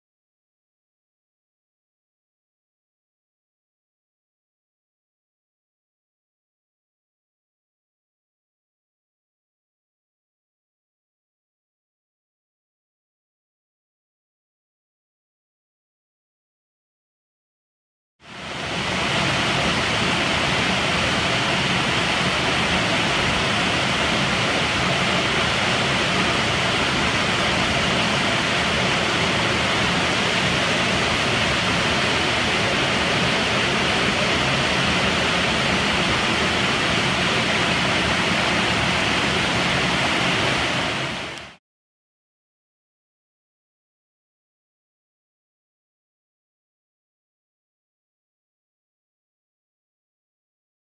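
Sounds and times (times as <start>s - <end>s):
waterfall rushing: 18.3s - 41.6s.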